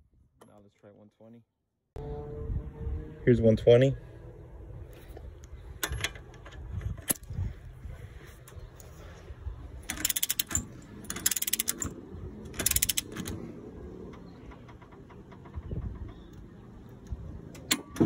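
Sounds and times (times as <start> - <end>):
torque wrench clicking: 9.9 - 11.9, 12.6 - 13.3.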